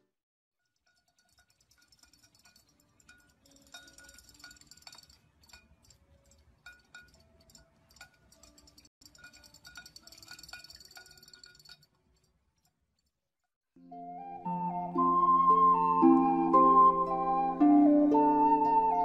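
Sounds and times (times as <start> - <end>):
faint chiming background music: 2.3 - 11.8.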